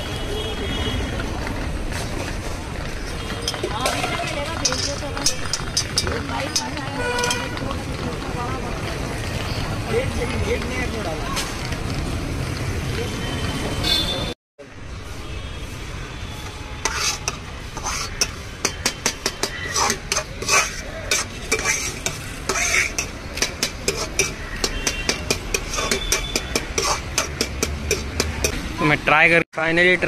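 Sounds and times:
metal spoon scraping a pan: 3.4 - 7.6, 16.7 - 28.6.

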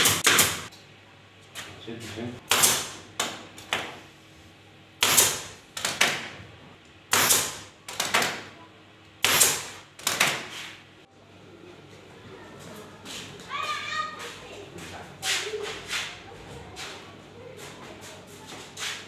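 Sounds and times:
pneumatic staple gun shots: 0.0 - 0.7, 2.5 - 3.0, 5.0 - 6.2, 7.1 - 8.4, 9.2 - 10.5.

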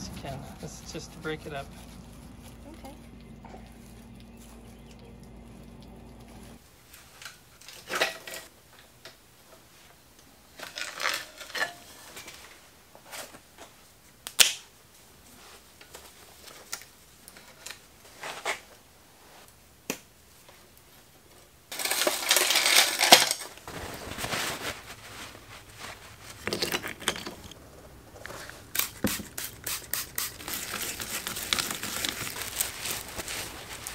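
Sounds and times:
bicycle chain rustling in cloth: 21.7 - 26.7, 30.4 - 33.9.

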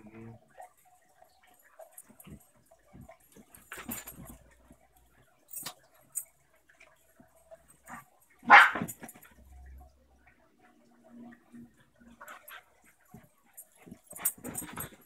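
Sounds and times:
faint clicks and taps: 0.5 - 15.0
dog barking: 8.4 - 8.9.

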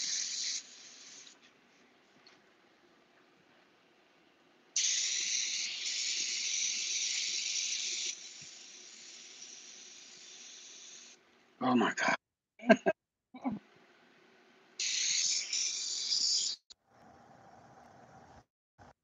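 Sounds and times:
airbrush spraying hiss: 0.0 - 1.4, 4.8 - 11.2, 14.8 - 16.7.

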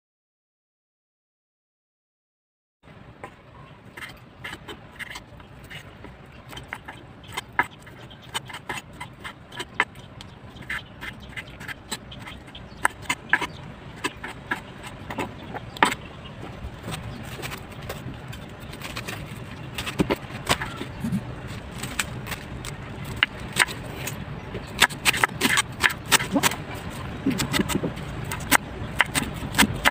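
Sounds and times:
knife cutting cabbage: 3.9 - 16.0, 16.8 - 29.9
knife chopping on wooden board: 10.6 - 16.0, 24.8 - 26.6, 27.2 - 29.9.

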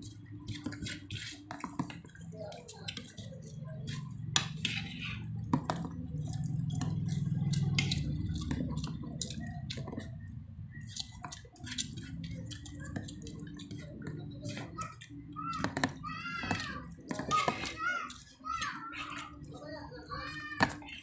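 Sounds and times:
wet chewing and lip smacks: 5.9 - 15.1.

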